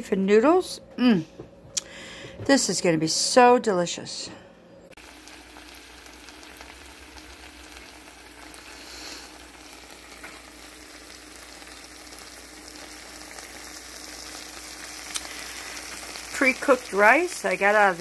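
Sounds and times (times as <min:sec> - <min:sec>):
food sizzling in a skillet: 0:05.0 - 0:18.0.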